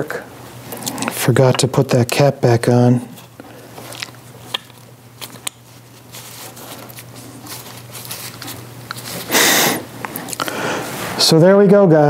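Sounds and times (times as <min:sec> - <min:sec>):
handling rustles: 0:03.0 - 0:09.4.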